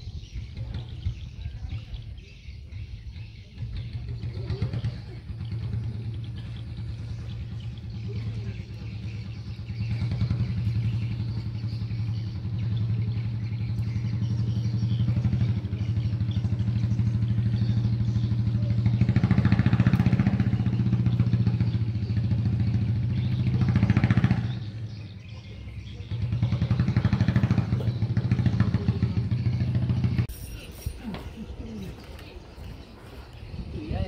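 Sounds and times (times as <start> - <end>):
small engine running: 3.6 - 30.6.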